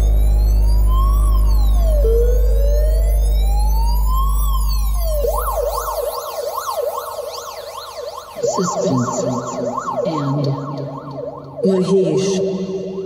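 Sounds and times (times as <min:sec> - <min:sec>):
deep bass note: 0:00.0 - 0:05.2
synthesized siren wail: 0:00.0 - 0:13.0.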